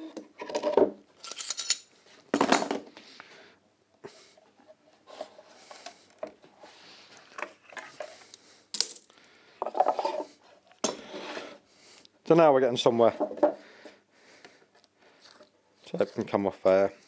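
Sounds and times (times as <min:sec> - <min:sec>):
tools clattering: 0:00.4 - 0:02.8
tools clinking on a workbench: 0:00.4 - 0:02.8.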